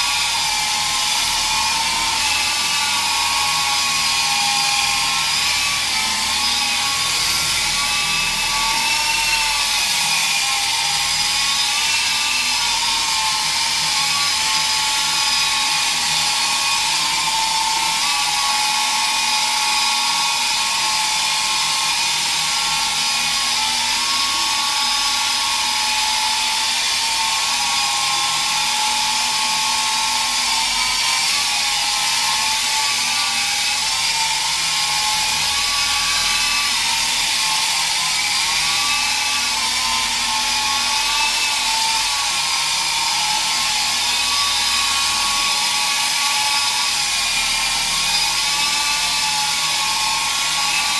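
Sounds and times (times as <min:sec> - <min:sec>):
model helicopter whine: 0:00.0 - 0:50.9.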